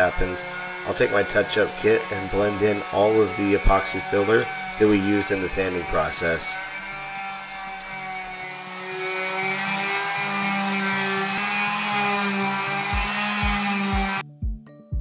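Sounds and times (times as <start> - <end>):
kick drum beat: 12.9 - 15.0.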